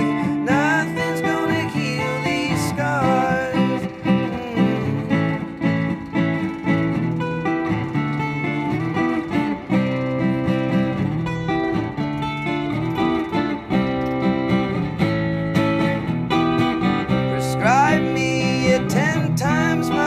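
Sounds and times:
person singing: 0.0 - 5.5, 17.3 - 20.0
acoustic guitars strumming: 0.0 - 20.0.

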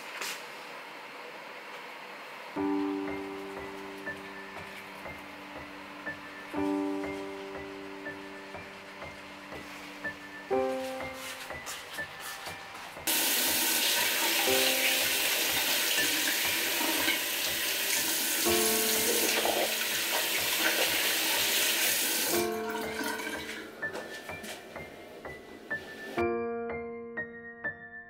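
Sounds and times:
soft piano music: 2.5 - 28.0
tap running into basin: 13.1 - 23.6.

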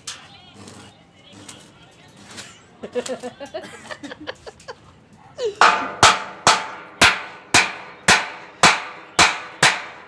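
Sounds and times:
hammer striking steel: 5.6 - 10.0.

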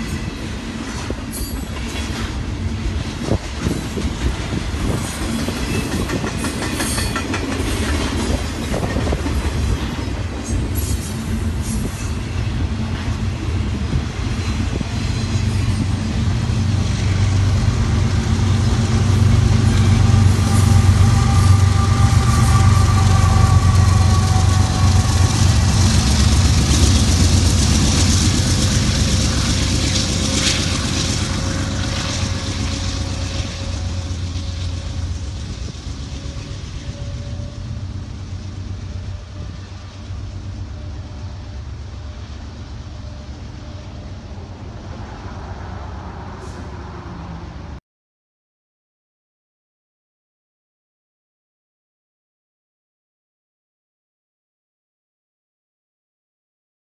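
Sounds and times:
wheels on rails: 0.0 - 45.1
diesel locomotive engine drone: 0.0 - 47.8.

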